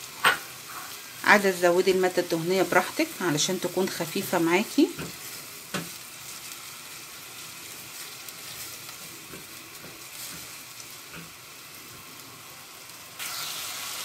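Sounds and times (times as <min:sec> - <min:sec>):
onion frying soft sizzle: 0:00.0 - 0:14.0
spatula stirring: 0:03.4 - 0:12.1.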